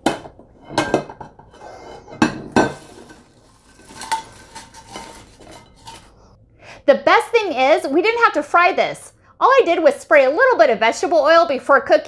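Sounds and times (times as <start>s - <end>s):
metal basket clinking on plate: 2.2s - 6.1s.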